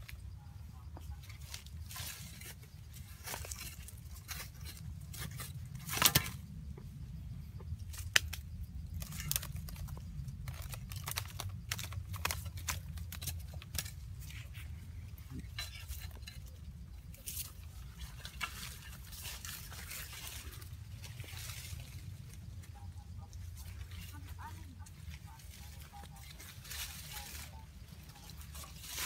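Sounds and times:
stick scraping dry earth: 0:01.3 - 0:06.5, 0:07.9 - 0:22.9, 0:23.6 - 0:29.0
bamboo basket knocks and rustles: 0:03.2 - 0:06.6.

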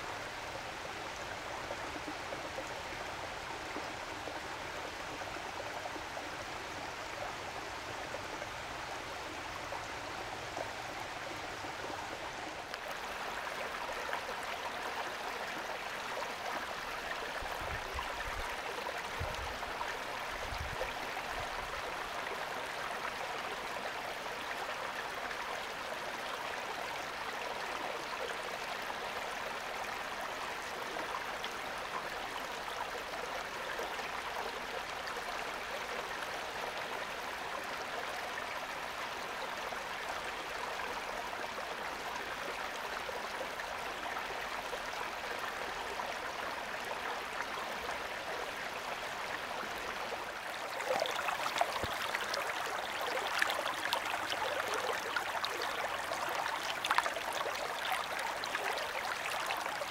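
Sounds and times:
waterfall pouring into stream: 0:50.6 - 0:59.9.

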